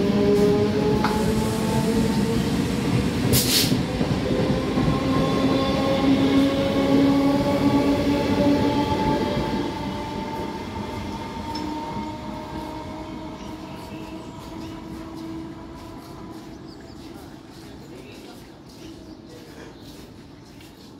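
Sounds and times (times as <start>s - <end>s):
train wheels rumbling on rails: 0.0s - 20.9s
short hiss: 3.4s - 3.8s.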